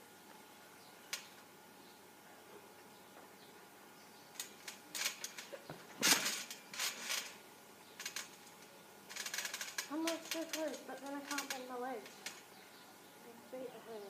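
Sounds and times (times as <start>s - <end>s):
trampoline springs rattling: 4.3s - 12.6s.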